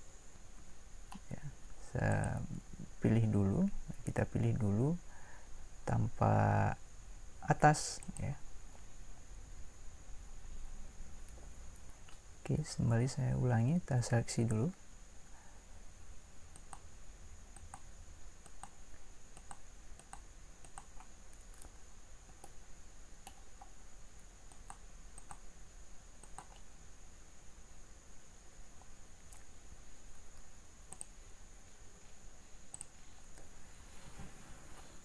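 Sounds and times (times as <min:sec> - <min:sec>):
faint high whine: 0:00.0 - 0:35.0
mouse and keyboard clicks: 0:17.6 - 0:18.8, 0:19.4 - 0:22.6, 0:23.2 - 0:23.8, 0:24.5 - 0:25.4, 0:26.2 - 0:26.7, 0:30.9 - 0:31.2, 0:32.7 - 0:33.5.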